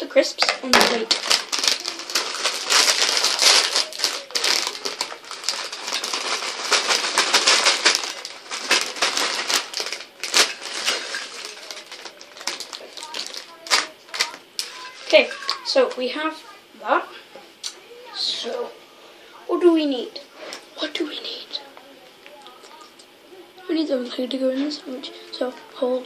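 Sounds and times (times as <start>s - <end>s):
crisp packet crinkling: 0.4s - 16.1s
crisps crackling onto a plate: 0.4s - 16.1s.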